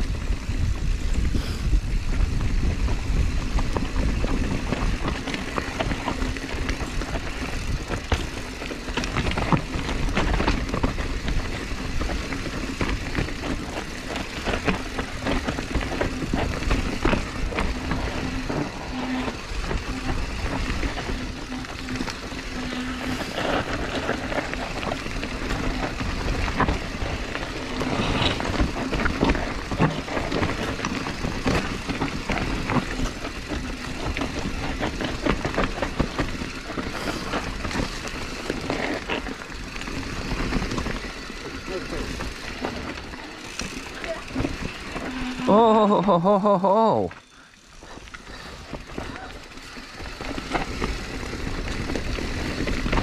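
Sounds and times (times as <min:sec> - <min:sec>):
bike rattling over rough ground: 0:00.0 - 0:53.0
steady buzz: 0:11.4 - 0:53.0.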